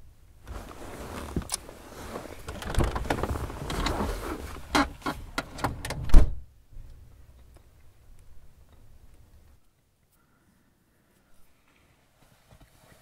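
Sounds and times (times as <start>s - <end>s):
rustling and shifting: 0.3s - 6.1s
car door shutting: 4.6s - 6.4s.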